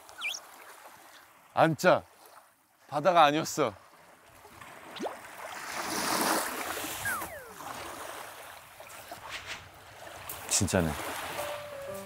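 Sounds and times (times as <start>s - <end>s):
sliding whistle-like tones: 0.1s - 0.4s, 7.0s - 7.8s.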